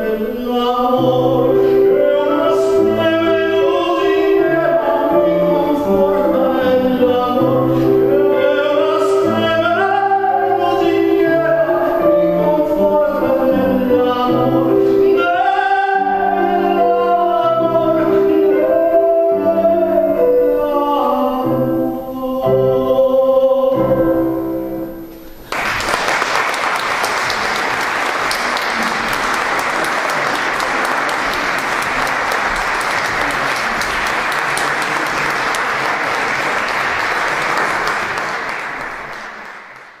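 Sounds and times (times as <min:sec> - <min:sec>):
male classical singer: 0:00.0 - 0:25.0
grand piano chords: 0:00.0 - 0:40.0
audience applause: 0:25.5 - 0:40.0.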